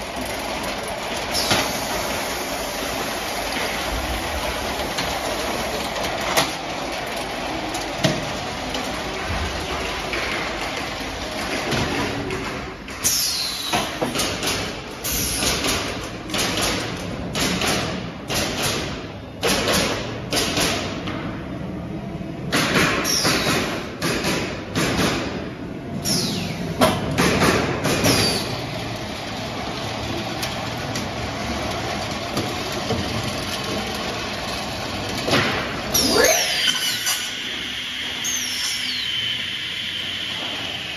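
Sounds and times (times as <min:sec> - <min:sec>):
machinery running steadily: 0:00.0 - 0:40.9
pneumatic nailer shots: 0:13.0 - 0:21.0, 0:22.5 - 0:28.6.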